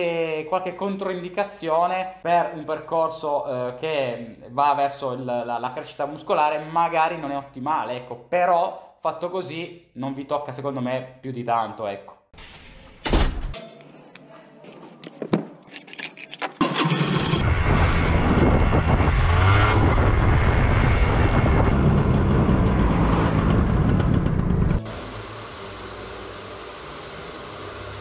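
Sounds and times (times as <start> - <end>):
wind noise on microphone: 17.4 - 22.6.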